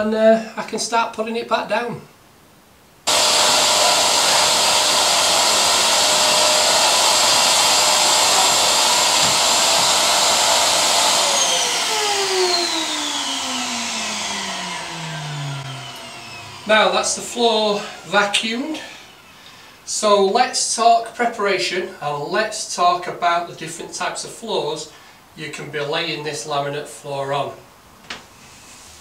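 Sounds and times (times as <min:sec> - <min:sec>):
motor whine spinning down: 0:03.1 - 0:19.4
vacuum cleaner running: 0:03.1 - 0:20.1.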